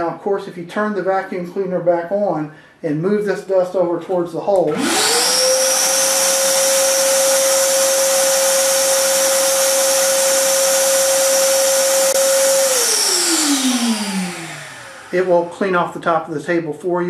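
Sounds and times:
shop vac motor whine: 4.7s - 15.8s.

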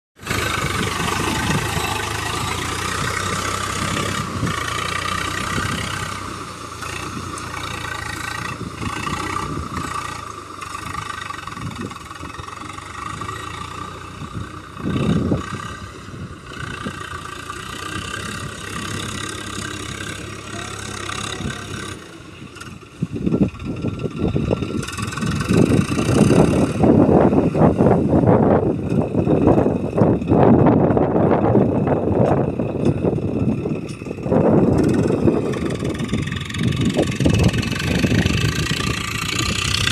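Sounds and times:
loud uneven noise: 0.2s - 13.8s, 17.2s - 22.8s
tractor diesel engine running: 0.2s - 39.9s.

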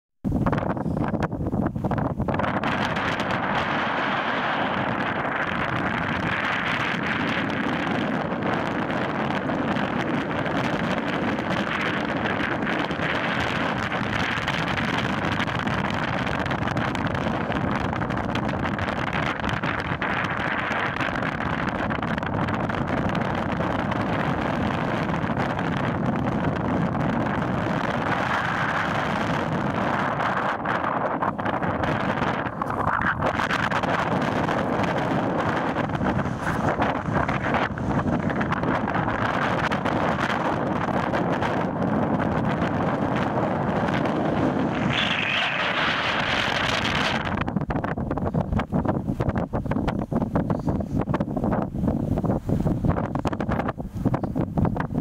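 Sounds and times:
strong wind on microphone: 0.2s - 55.0s.

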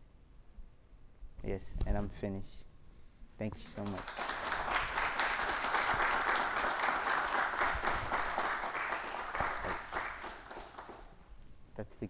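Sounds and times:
audience applauding: 3.7s - 11.2s.

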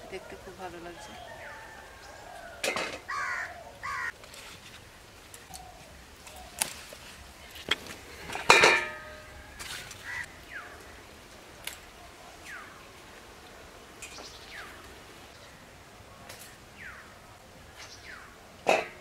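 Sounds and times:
harsh bird calls: 0.9s - 4.2s, 9.2s - 11.2s.

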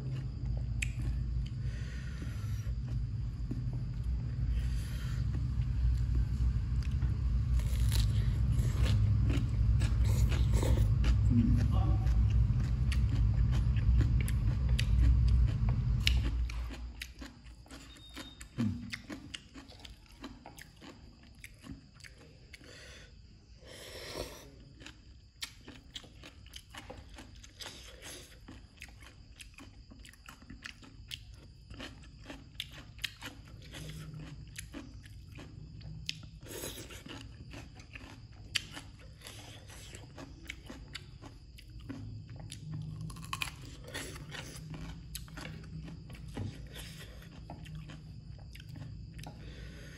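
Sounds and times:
loud low rumble: 0.0s - 17.0s
chewing and crunching: 0.0s - 49.9s.

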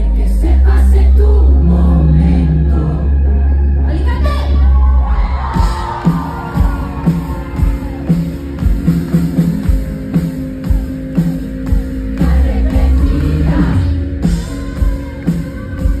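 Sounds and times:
singer's voice: 0.0s - 6.9s, 12.1s - 16.0s
bass: 0.0s - 16.0s
low drum beat: 5.6s - 16.0s.

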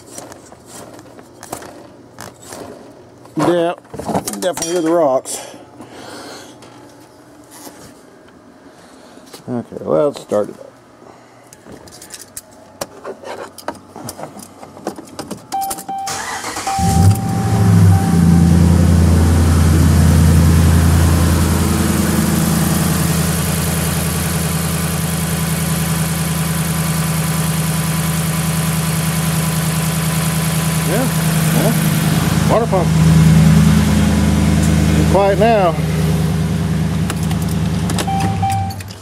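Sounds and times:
truck engine starting and idling: 15.9s - 39.0s.

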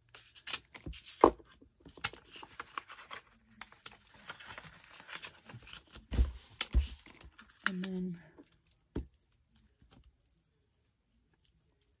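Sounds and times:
paper rustling and scraping: 1.8s - 7.9s.

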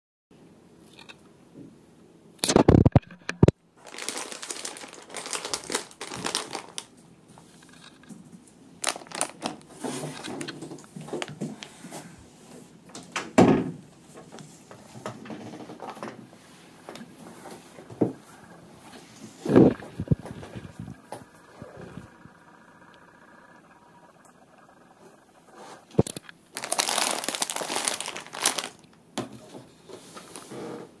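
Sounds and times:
plastic bag crinkling: 3.8s - 6.9s, 8.8s - 11.4s, 24.1s - 29.0s.

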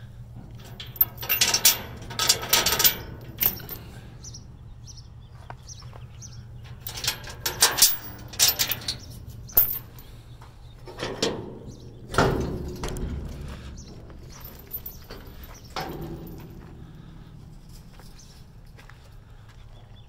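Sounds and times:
metal chains rattling: 0.0s - 4.4s, 6.6s - 10.3s, 10.9s - 18.5s.

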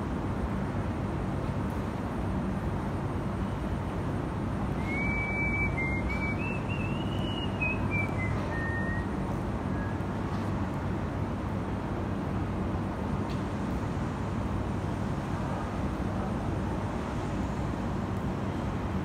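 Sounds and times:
thin whistle-like tone: 4.8s - 10.0s.

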